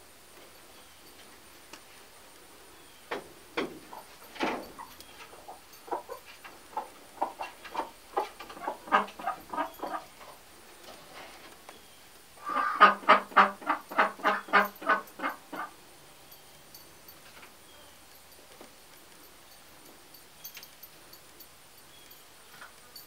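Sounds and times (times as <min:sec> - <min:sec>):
chickens clucking: 0:03.6 - 0:10.4, 0:12.4 - 0:15.8.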